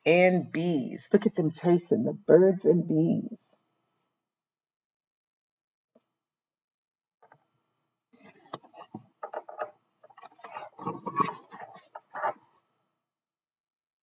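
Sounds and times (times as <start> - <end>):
book pages turning: 8.2 - 12.6.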